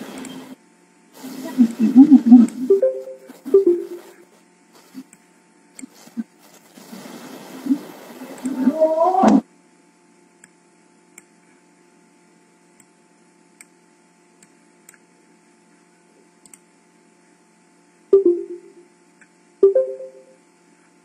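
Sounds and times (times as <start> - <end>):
low microphone hum: 1.2 - 5.1
computer mouse clicks: 16.4 - 16.6.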